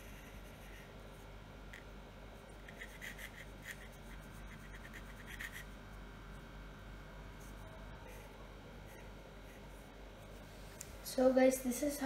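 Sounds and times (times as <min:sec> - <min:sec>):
pencil scratching on paper: 0:02.6 - 0:05.8.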